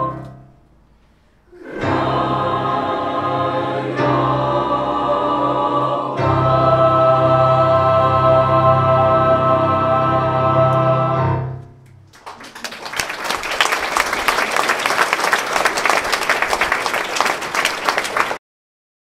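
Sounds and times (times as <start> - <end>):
choir singing a chord: 1.5 - 11.7
audience applause: 12.1 - 18.4.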